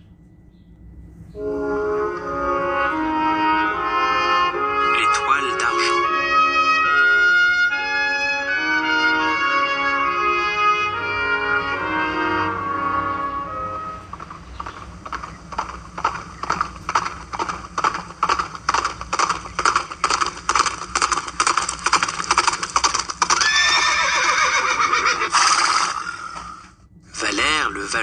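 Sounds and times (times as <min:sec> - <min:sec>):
horse hooves clip-clopping: 0:06.2 - 0:11.2, 0:12.4 - 0:26.5
horse neighing: 0:11.4 - 0:26.8.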